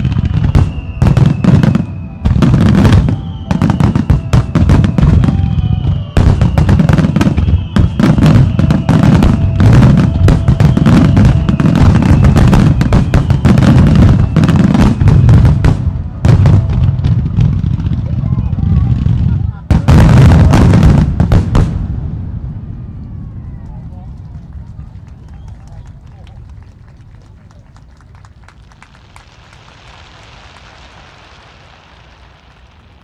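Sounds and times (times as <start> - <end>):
music playing: 0.0 - 18.5.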